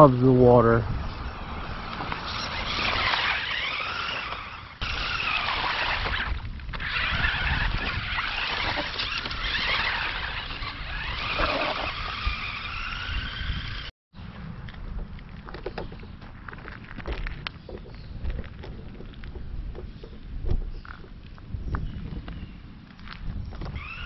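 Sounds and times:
toy truck electric motors whining: 1.3s - 13.9s, 23.7s - 24.0s.

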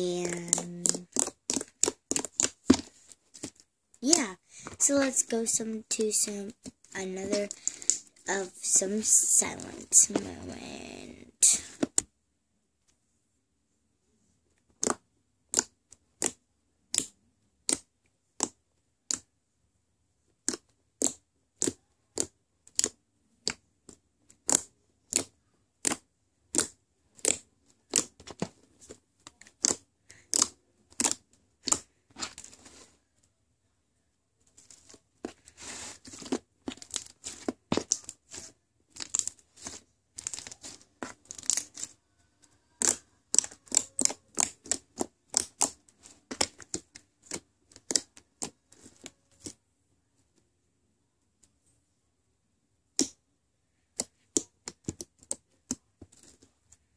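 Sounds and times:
foam slime popping: 42.6s - 48.5s.

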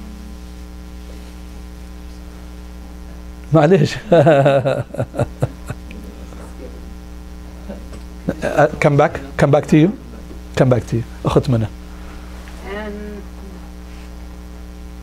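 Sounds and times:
electrical mains hum: 0.0s - 15.0s
man speaking: 3.5s - 4.8s, 8.2s - 11.8s
man laughing: 3.7s - 5.9s, 7.6s - 8.9s.

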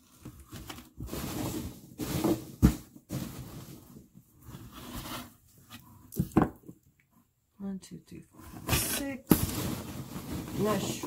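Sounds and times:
hands rummaging in cardboard box: 0.0s - 5.3s, 8.6s - 11.0s.

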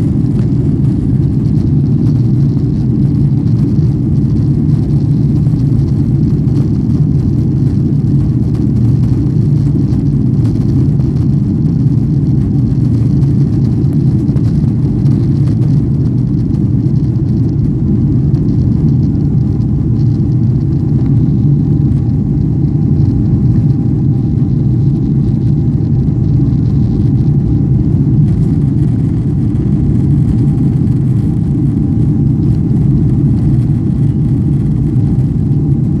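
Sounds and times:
airplane cabin engine rumble: 0.0s - 36.0s
faint steady whine: 0.0s - 36.0s.

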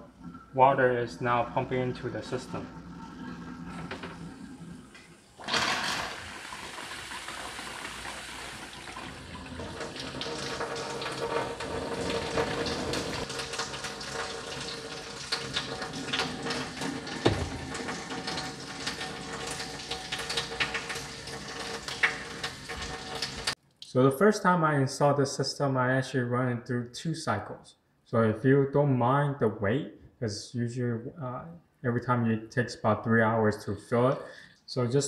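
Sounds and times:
water rushing into filter: 0.0s - 23.6s.

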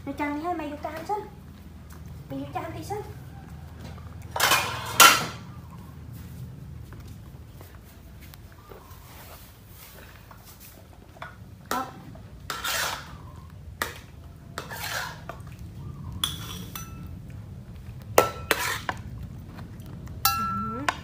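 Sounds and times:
metal spoon scraping wok: 4.2s - 5.5s, 11.7s - 15.4s, 16.2s - 17.1s, 18.2s - 19.1s
spoon clinking on ceramic bowl: 16.2s - 17.1s, 20.2s - 21.0s.

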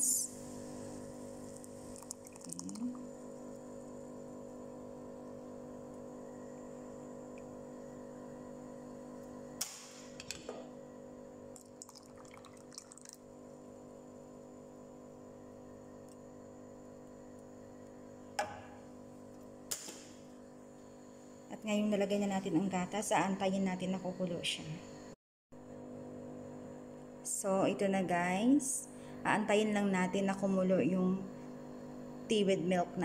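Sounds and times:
tea simmering and bubbling: 0.4s - 8.0s, 11.5s - 13.8s
milk pouring into a saucepan: 11.6s - 13.3s.

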